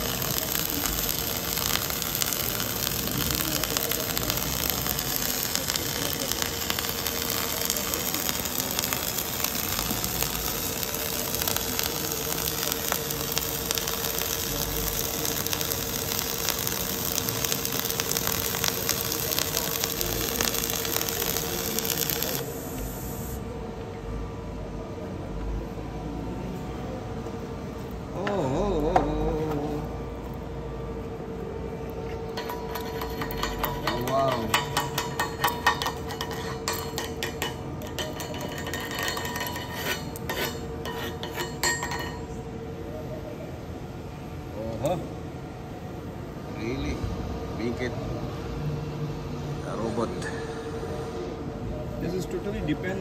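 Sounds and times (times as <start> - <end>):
welding arc crackling and hissing: 0.0 - 23.5, 32.3 - 42.3
workshop noise: 0.0 - 53.0.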